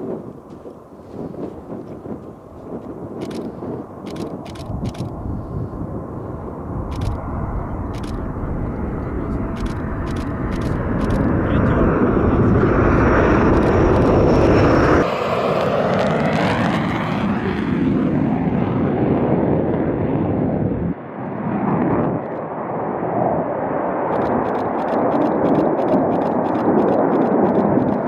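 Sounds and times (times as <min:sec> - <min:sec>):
jet engines roaring: 0:00.0 - 0:28.0
rapid high crackling: 0:12.9 - 0:14.9, 0:24.1 - 0:28.0.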